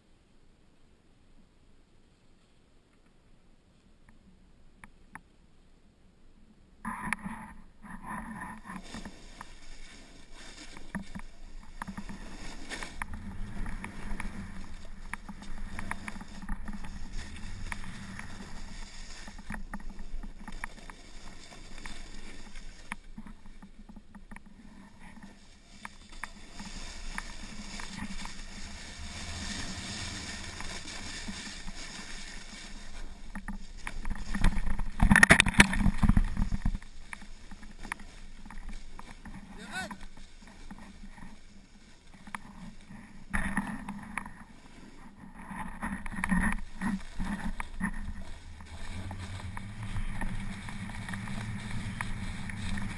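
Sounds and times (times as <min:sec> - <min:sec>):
skis hissing through snow: 0:08.8 - 0:22.9, 0:25.4 - 0:35.0, 0:46.6 - 0:52.9.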